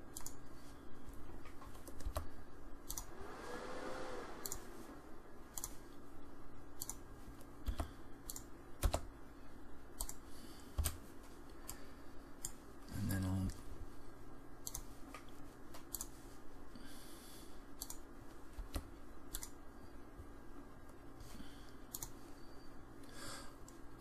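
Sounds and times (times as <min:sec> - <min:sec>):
mouse and keyboard clicks: 0:01.5 - 0:03.1, 0:04.4 - 0:04.7, 0:05.5 - 0:05.8, 0:06.8 - 0:07.0, 0:10.0 - 0:11.0, 0:14.6 - 0:16.2, 0:17.8 - 0:19.6, 0:21.9 - 0:22.2.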